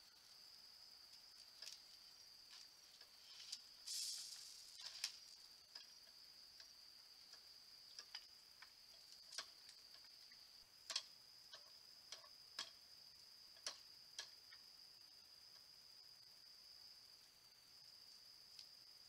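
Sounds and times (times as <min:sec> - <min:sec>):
claws clicking on metal pole: 0:07.3 - 0:10.1, 0:10.9 - 0:12.8, 0:13.5 - 0:14.6.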